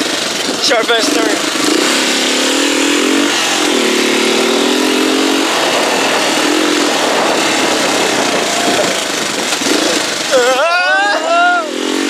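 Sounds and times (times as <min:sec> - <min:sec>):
dirt bike engine revving: 0:00.0 - 0:12.0
wind on microphone: 0:03.4 - 0:10.2.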